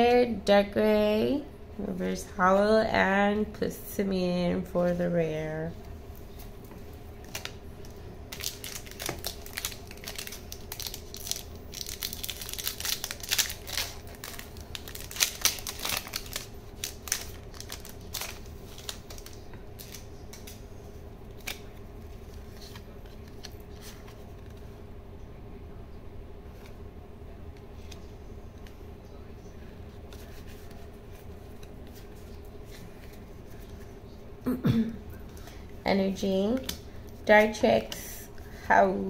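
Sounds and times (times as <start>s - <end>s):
foil wrapper crinkling and tearing: 7.2s - 20.6s.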